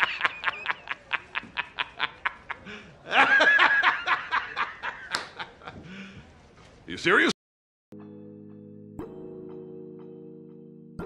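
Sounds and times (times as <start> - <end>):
man laughing heartily: 0.0 - 5.9.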